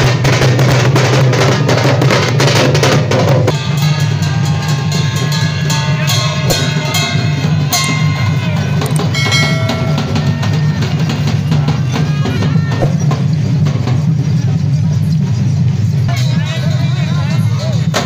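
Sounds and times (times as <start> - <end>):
drums beating: 0.0 - 18.0
held melodic notes: 3.5 - 13.7
brass cymbals beaten: 3.5 - 14.8.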